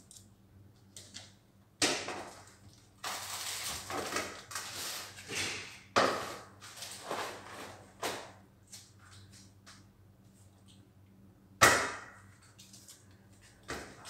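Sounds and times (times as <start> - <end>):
packages rustling: 2.4 - 5.3, 6.5 - 8.0.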